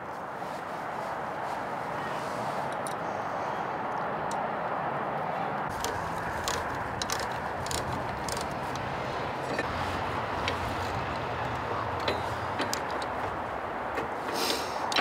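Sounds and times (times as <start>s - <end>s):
steady background noise: 0.0s - 15.0s
wrench metal clicks and clinks: 5.8s - 8.9s.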